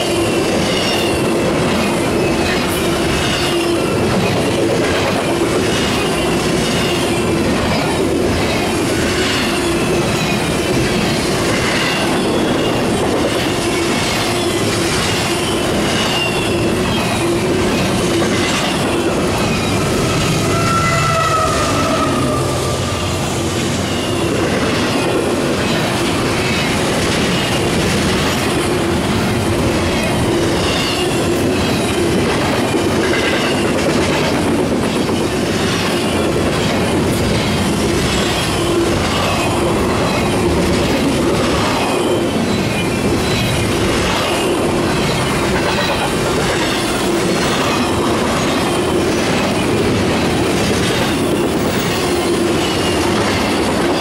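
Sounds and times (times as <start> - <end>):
steel wheels rumbling on rail: 0.0 - 54.0
wheel squeals: 23.8 - 24.4.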